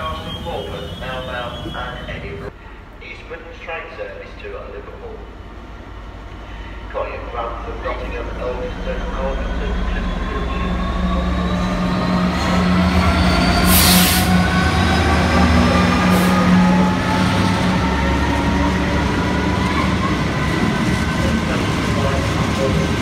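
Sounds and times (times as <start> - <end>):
diesel locomotive engine drone: 0.0 - 23.0
faint rising whine: 1.9 - 13.7.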